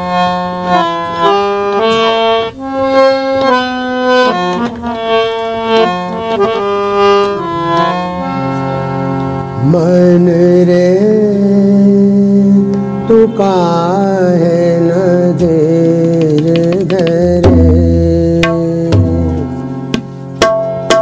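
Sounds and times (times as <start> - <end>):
harmonium playing: 0.0 - 21.0
man singing long note: 9.6 - 16.0.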